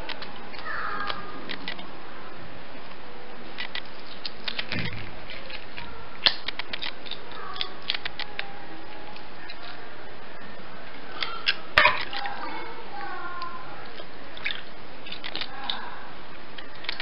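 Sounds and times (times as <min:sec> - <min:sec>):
wet clicks and squelches: 0:03.6 - 0:08.5, 0:13.4 - 0:15.8.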